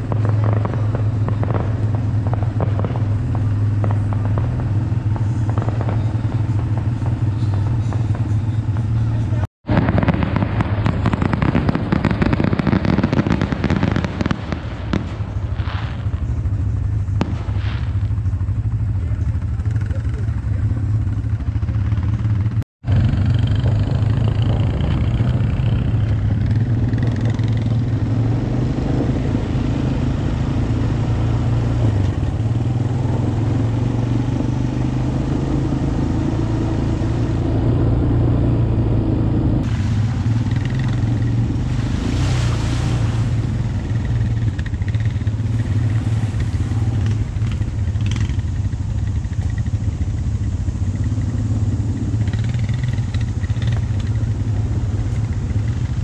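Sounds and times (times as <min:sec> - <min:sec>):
atv engine droning: 0:00.0 - 0:56.0
short rushing noise: 0:36.2 - 0:48.4.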